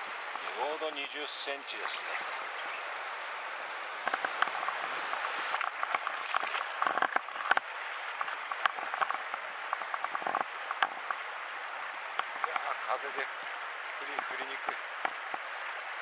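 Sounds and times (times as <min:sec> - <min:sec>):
river flowing over stones: 0:00.0 - 0:16.0
water splashes and drips: 0:04.0 - 0:16.0.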